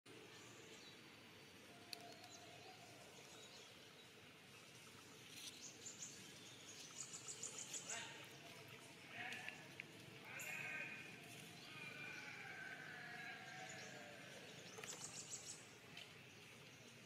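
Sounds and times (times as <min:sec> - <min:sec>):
steady low hiss: 0:00.1 - 0:17.0.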